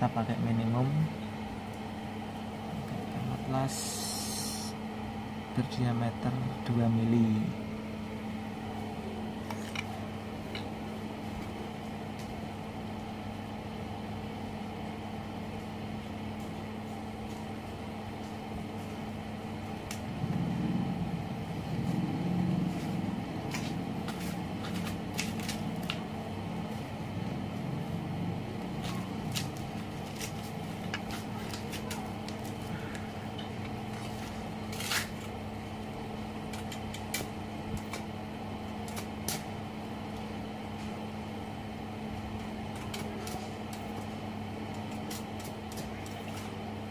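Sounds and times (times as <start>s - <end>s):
welder humming: 0.0s - 13.8s.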